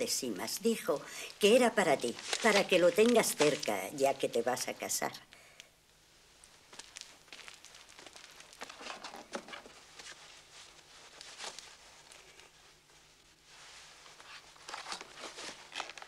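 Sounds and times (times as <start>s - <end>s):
string and cardboard rustling: 1.4s - 4.3s, 6.7s - 16.0s.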